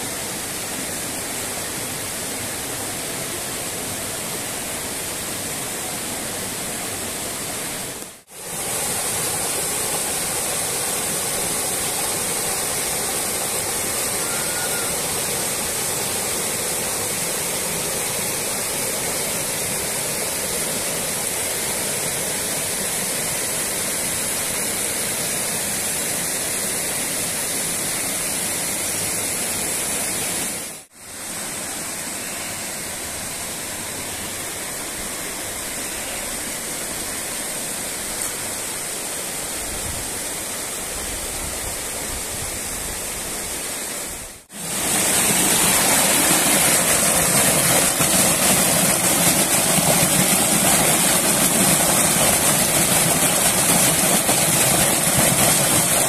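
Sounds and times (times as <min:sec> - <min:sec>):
water rushing over boulders: 0:00.0 - 0:56.0.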